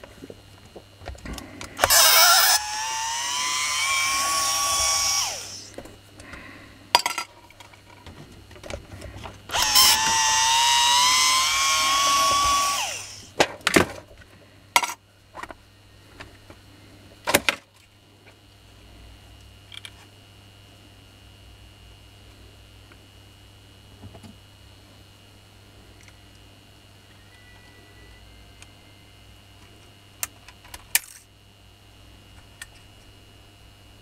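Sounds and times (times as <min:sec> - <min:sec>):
electric screwdriver motor whine: 0:01.8 - 0:05.8, 0:09.5 - 0:13.3.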